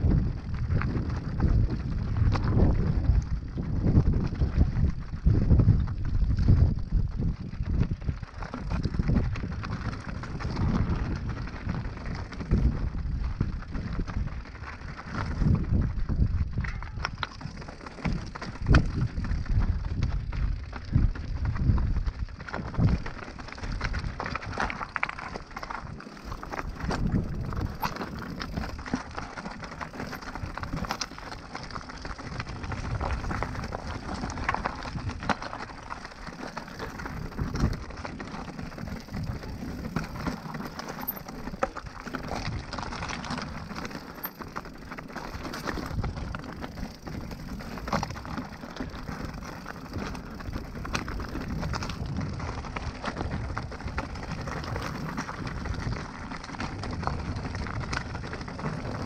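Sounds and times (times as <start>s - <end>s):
tyres crunching on gravel: 21.4s - 59.0s
bike clattering over bumps: 22.4s - 59.0s.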